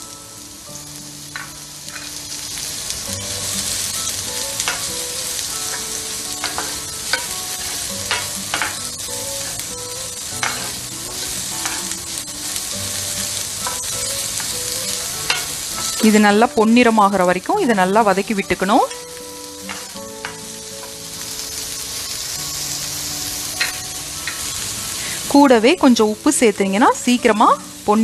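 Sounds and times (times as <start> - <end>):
onions sizzling in butter: 0.0 - 28.0
wooden spatula scraping pan: 10.4 - 11.9.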